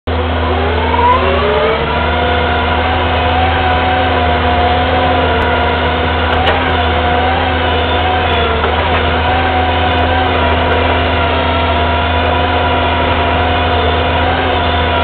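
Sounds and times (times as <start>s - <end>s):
diesel engine running under load: 0.1s - 15.0s
rising whine: 0.1s - 15.0s.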